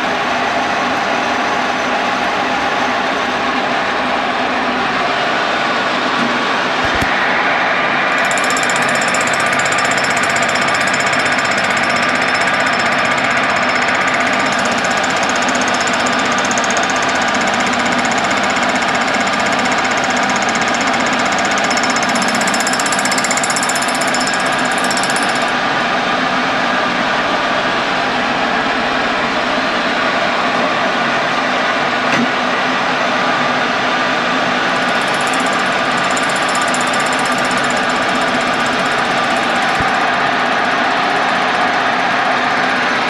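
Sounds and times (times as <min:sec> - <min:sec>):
milling machine cutting steel: 0:08.2 - 0:25.5, 0:34.8 - 0:40.7.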